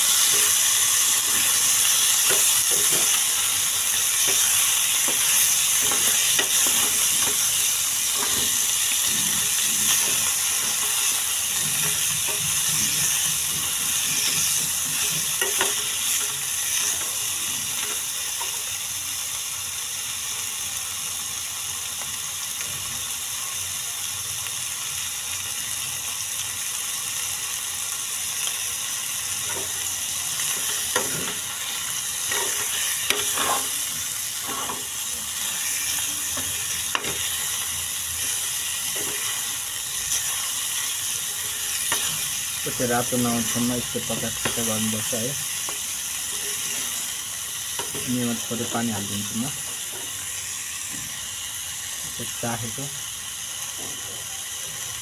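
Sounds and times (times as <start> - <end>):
chicken sizzling in hot oil: 0.0 - 55.0
metal spoon scraping pan: 29.4 - 37.6.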